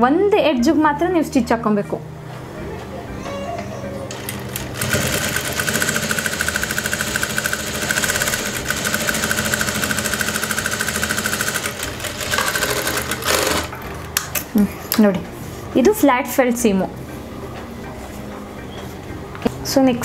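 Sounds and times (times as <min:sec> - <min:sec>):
sewing machine stitching fast: 0:04.6 - 0:13.7.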